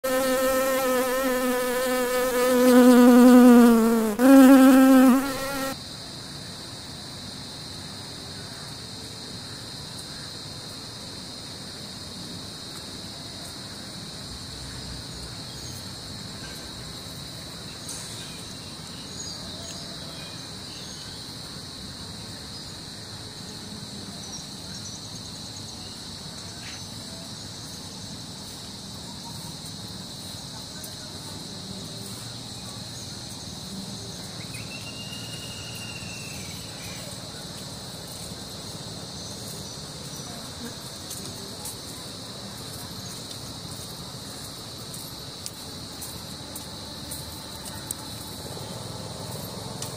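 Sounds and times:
cartoon bee buzzing: 0.0s - 5.8s
high-pitched insect chorus: 0.0s - 49.9s.

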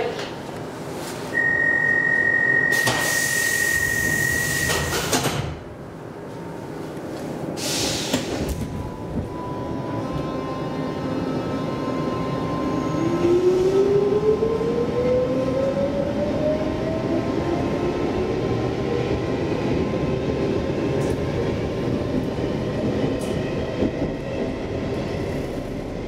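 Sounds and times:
high warning beep: 1.4s - 4.9s
sliding doors hissing shut: 4.4s - 5.6s, 7.6s - 8.6s
short hiss of air: 7.6s - 8.5s.

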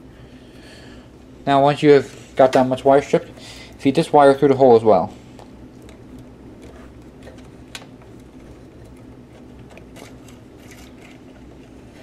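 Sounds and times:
steady low hum: 0.0s - 12.0s
wire clicks and rustles: 5.4s - 12.0s.

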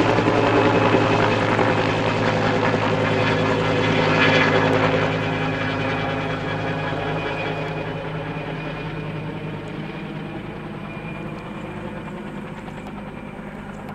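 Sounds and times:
helicopter rotor and engine: 0.0s - 13.9s.

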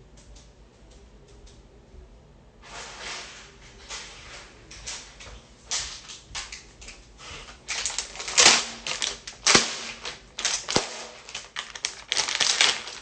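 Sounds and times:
plastic bag crinkling: 2.7s - 13.0s.

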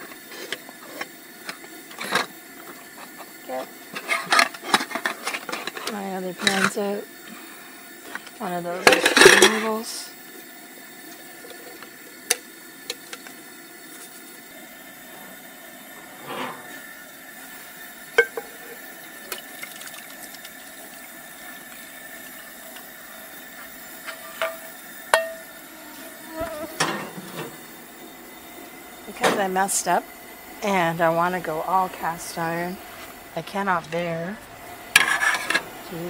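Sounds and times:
metal cookware clinking: 18.2s - 18.8s, 24.1s - 25.5s
metal scraping: 34.9s - 35.7s.

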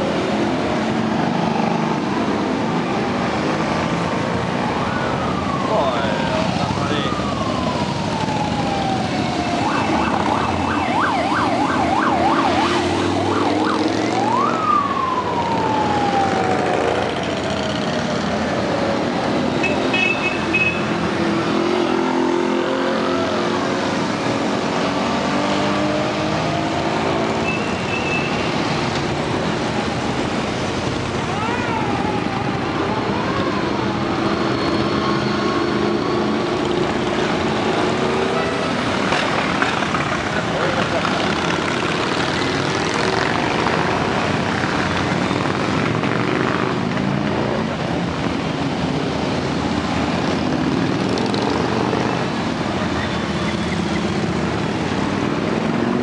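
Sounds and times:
siren warbling: 4.7s - 18.4s
motorcycles riding past: 5.3s - 27.4s.

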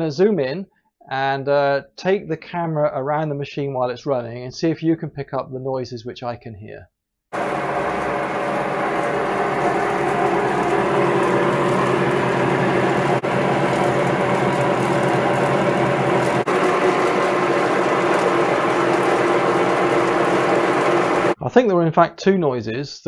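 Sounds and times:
milling machine rumbling: 7.4s - 21.4s.

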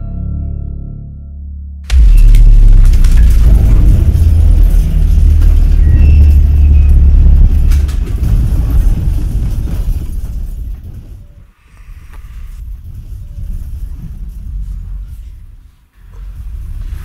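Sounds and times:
music: 0.0s - 8.0s
deep rumble: 1.8s - 17.0s.

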